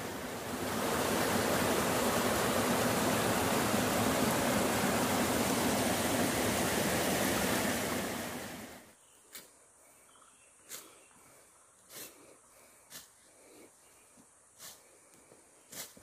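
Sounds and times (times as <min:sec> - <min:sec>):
water rushing over rocks: 0:00.0 - 0:08.8.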